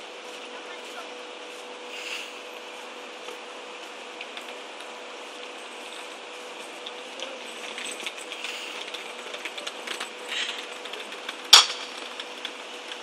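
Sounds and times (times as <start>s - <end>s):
footsteps on brick paving: 0.0s - 13.0s
small wheels rattling over bricks: 5.6s - 13.0s.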